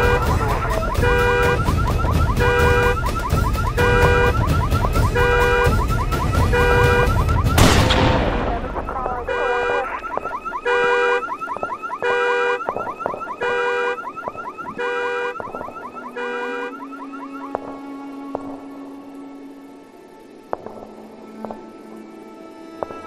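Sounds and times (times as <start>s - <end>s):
car alarm horn blasts: 0.0s - 18.7s
warbling siren tone: 0.0s - 19.2s
loud bang: 6.6s - 9.8s.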